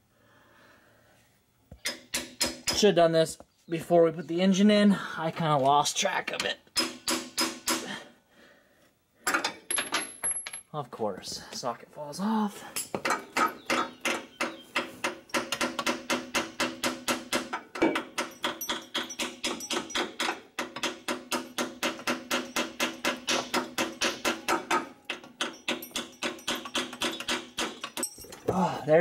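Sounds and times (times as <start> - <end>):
hammer striking metal: 14.8 - 28.2.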